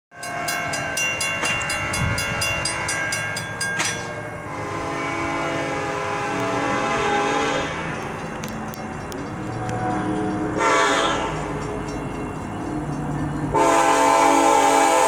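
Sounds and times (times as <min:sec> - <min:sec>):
crossing bells ringing: 0:00.1 - 0:15.0
locomotive horn: 0:04.5 - 0:08.0, 0:09.7 - 0:11.4, 0:13.5 - 0:15.0.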